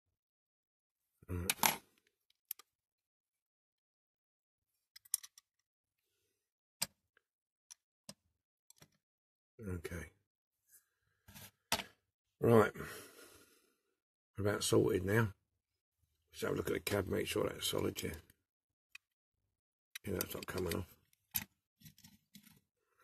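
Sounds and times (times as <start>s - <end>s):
person murmuring: 1.2s - 1.6s.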